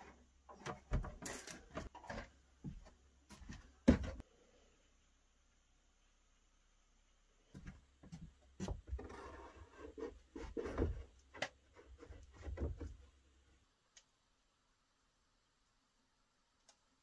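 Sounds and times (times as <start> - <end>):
objects knocking and scraping on wood: 0.0 - 4.2, 7.6 - 13.1.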